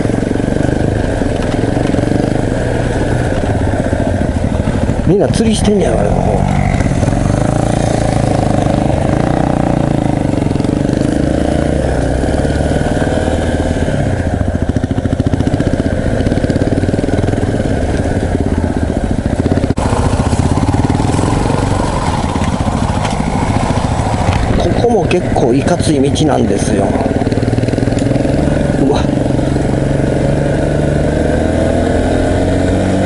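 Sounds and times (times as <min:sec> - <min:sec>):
motorcycle engine revving: 0:00.0 - 0:33.0.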